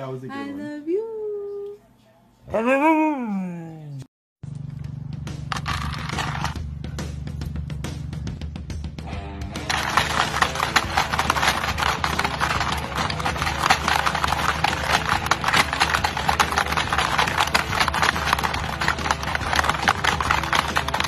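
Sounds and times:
plastic game pieces clacking: 5.5 - 6.6, 9.7 - 21.0.

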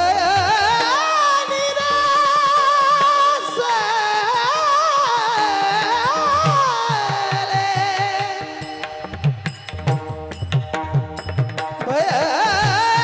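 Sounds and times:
man singing ornamented phrases: 0.0 - 9.0, 11.9 - 13.0.

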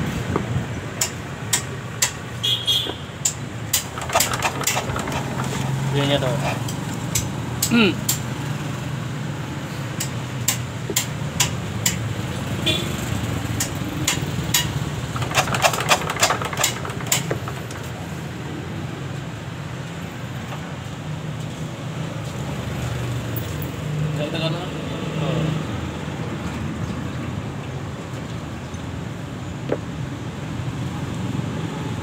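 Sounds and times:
sharp metallic clicks and knocks: 1.0 - 2.2, 3.2 - 8.3, 10.0 - 12.1, 13.6 - 18.2.

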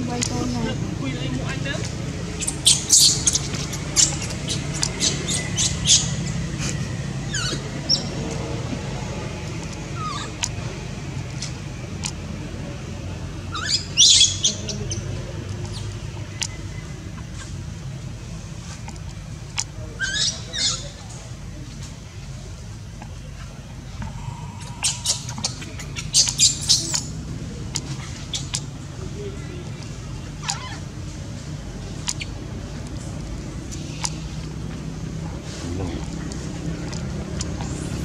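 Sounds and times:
baby monkey squeaking and chirping: 2.2 - 6.5, 7.3 - 8.2, 10.0 - 10.5, 13.5 - 15.0, 20.0 - 21.0, 24.5 - 27.2, 30.3 - 31.0
steady low hum: 14.6 - 38.0.

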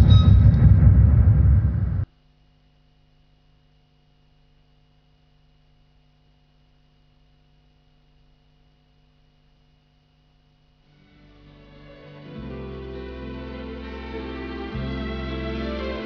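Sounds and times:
faint electrical hum: 0.0 - 14.9
soft music: 11.0 - 16.0.

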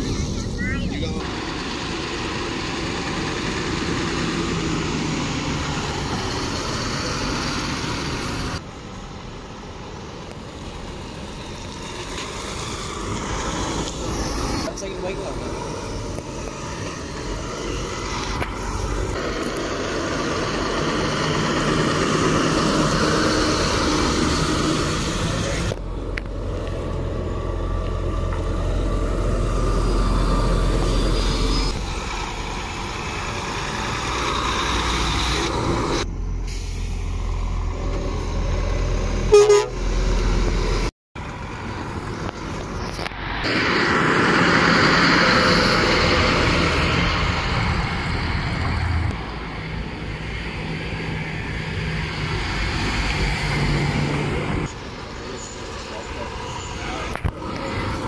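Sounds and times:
lorries driving past: 0.0 - 58.0
horn toot: 39.3 - 39.9.

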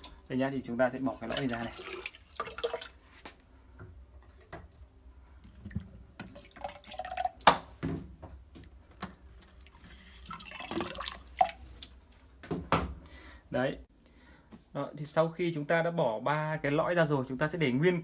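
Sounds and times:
water dripping and splashing: 0.9 - 4.8, 5.4 - 12.7.

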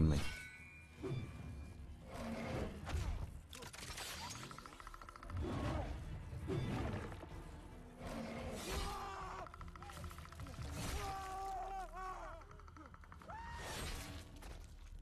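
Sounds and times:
action film music: 0.0 - 15.0
vocal-like cries: 8.2 - 13.8.

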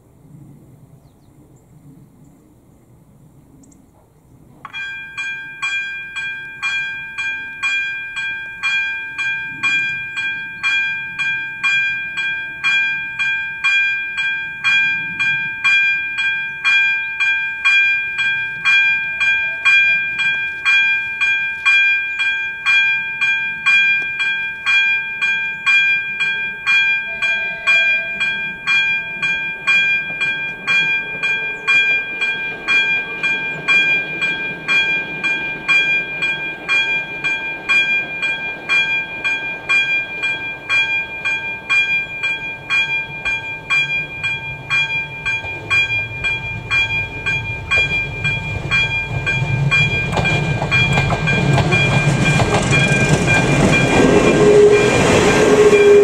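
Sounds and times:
level crossing bell dinging: 4.7 - 56.0
low rumble: 43.2 - 56.0.

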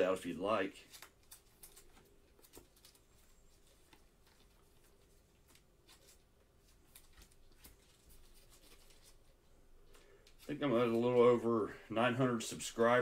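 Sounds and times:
trading cards rustling: 0.5 - 11.4
plastic wrapper handled: 0.8 - 10.6.

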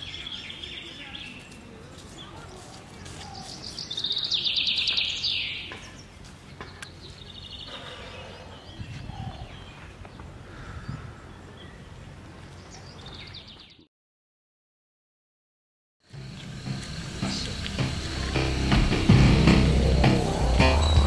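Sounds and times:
birds chattering calls: 0.0 - 13.8
outdoor background noise: 0.0 - 13.9, 16.0 - 21.0.

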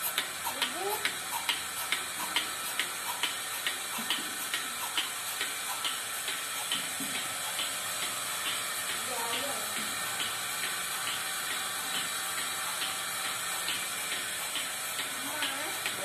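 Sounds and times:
milking machine pulsator ticking: 0.0 - 16.0.

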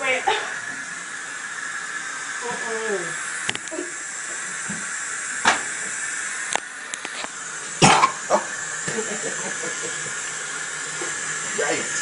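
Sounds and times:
person coughing: 7.8 - 8.4.

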